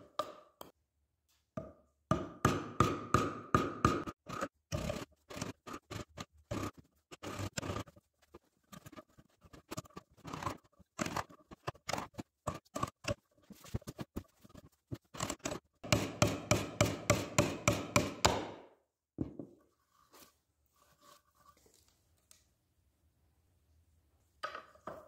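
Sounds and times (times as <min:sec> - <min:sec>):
chisel paring and scraping wood: 0:02.1 - 0:18.6
strikes driving chisel into wood: 0:15.8 - 0:18.6.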